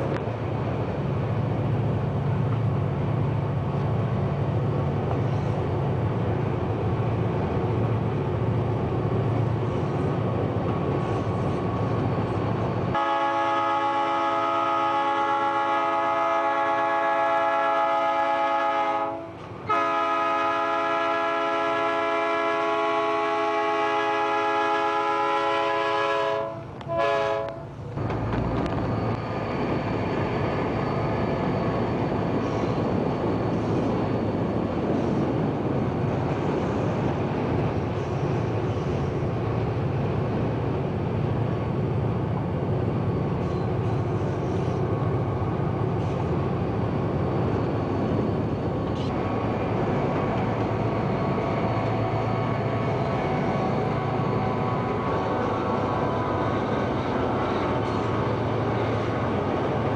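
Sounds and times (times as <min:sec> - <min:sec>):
locomotive rumbling past: 0:00.0 - 0:59.9
locomotive air horn: 0:12.9 - 0:27.8.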